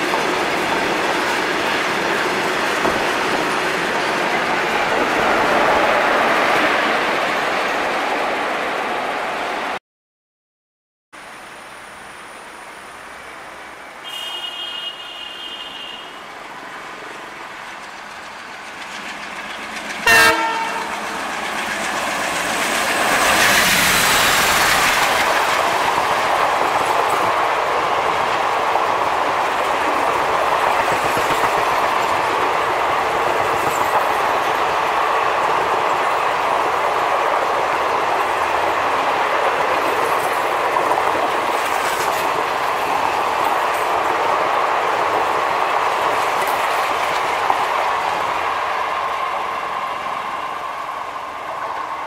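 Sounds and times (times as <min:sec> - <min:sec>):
train wheels rumbling and clattering: 0:00.0 - 0:08.6, 0:16.4 - 0:52.0
diesel locomotive engine: 0:11.2 - 0:52.0
train horn: 0:14.0 - 0:16.2, 0:20.0 - 0:21.1.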